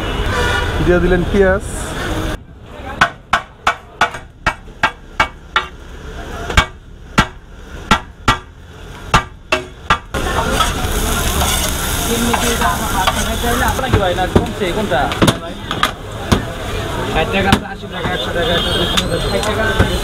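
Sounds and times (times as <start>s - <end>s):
cleaver chopping on griddle: 3.0s - 5.8s, 6.5s - 8.5s, 9.1s - 11.7s, 12.3s - 16.5s
food sizzling: 4.7s - 20.0s
spatula scraping griddle: 10.2s - 13.9s.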